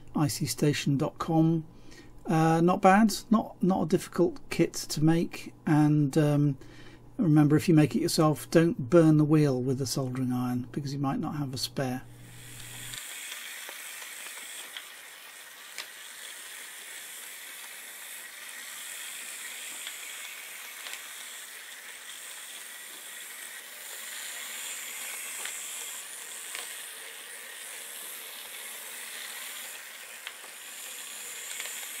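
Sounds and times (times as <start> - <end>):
small gear motors whirring: 12.2 - 32.0.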